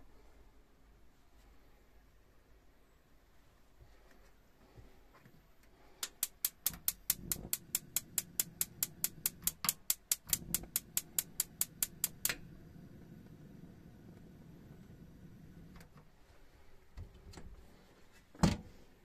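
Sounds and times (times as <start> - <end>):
spark igniter clicking: 6.0 - 15.7
gas flame rushing: 6.0 - 15.8.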